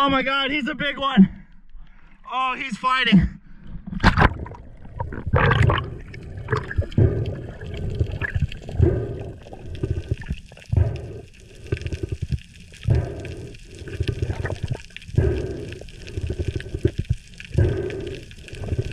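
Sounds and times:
underwater gurgling surges: 0:04.0 - 0:18.9.

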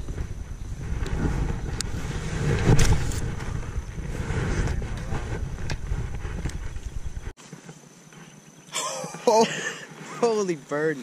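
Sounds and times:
wind buffeting microphone: 0:00.0 - 0:07.4.

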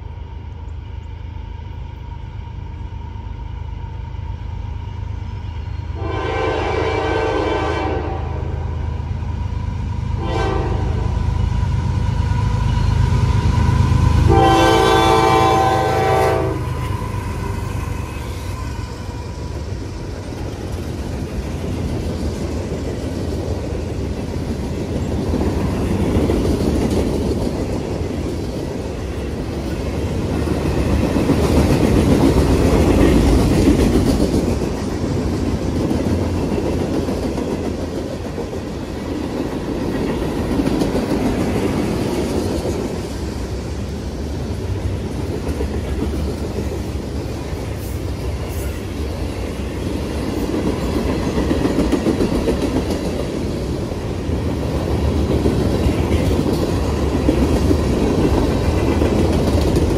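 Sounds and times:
locomotive horn blowing: 0:06.0 - 0:08.6, 0:10.2 - 0:11.1, 0:14.3 - 0:16.8
train wheels clacking on rails: 0:11.3 - 0:59.9.

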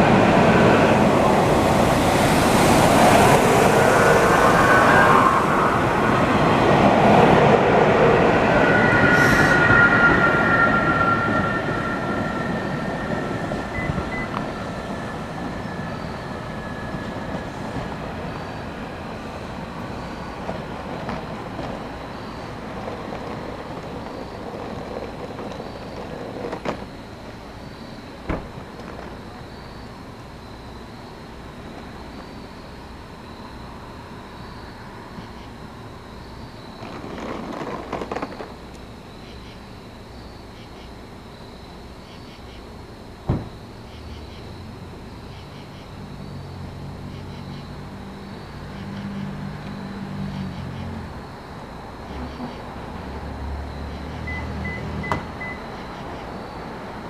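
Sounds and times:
insects chirping: 0:00.0 - 0:57.0
electric train running: 0:02.6 - 0:26.1.

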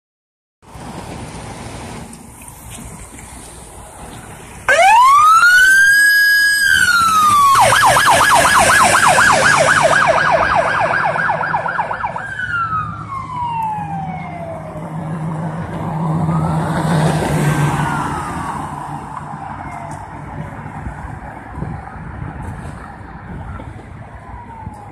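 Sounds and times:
electronic siren wailing and yelping: 0:04.7 - 0:20.0
fainter siren wail: 0:04.7 - 0:24.9.

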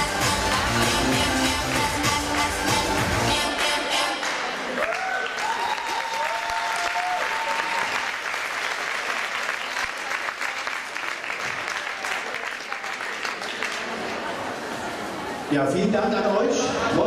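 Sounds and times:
crowd applauding and cheering: 0:00.0 - 0:14.4
high drawn-out cheers: 0:04.7 - 0:08.4.

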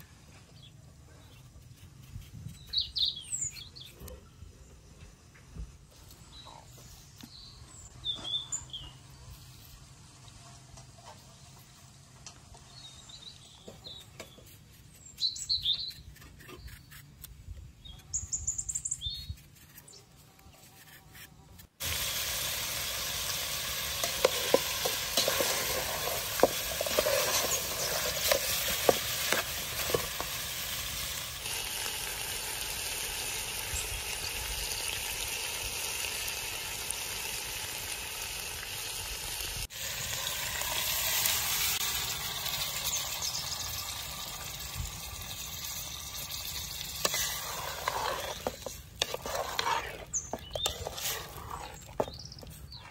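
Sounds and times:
bird chirps: 0:02.5 - 0:04.0, 0:12.7 - 0:17.0, 0:17.8 - 0:20.1
meat sizzling in oil: 0:21.8 - 0:51.6
spatula scraping metal pot: 0:23.5 - 0:30.7, 0:46.7 - 0:52.6.

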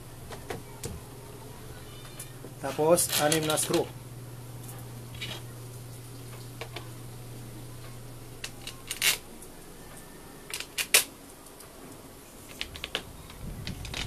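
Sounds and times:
clicks and knocks of small parts: 0:10.5 - 0:11.7, 0:12.4 - 0:14.0.

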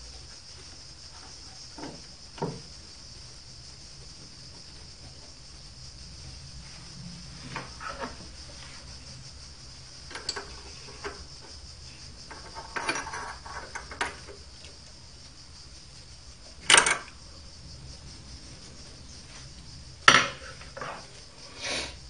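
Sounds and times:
metal parts clicking and knocking: 0:10.0 - 0:11.5, 0:12.2 - 0:14.4, 0:16.6 - 0:17.2.

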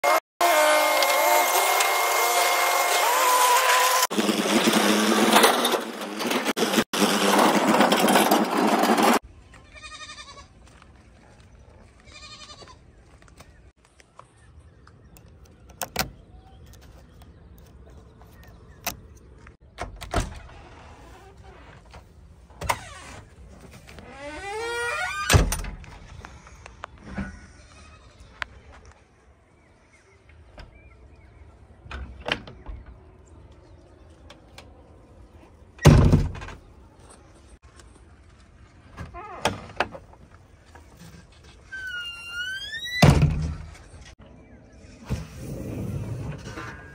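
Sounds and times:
loud machinery noise: 0:00.0 - 0:09.2.

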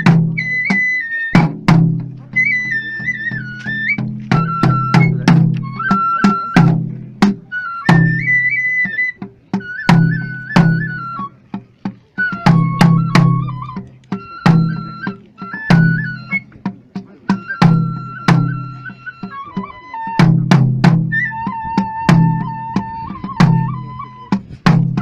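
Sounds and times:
sharp drum strokes: 0:00.0 - 0:08.4
flute melody: 0:00.0 - 0:25.0
heavy low drum: 0:00.0 - 0:25.0.

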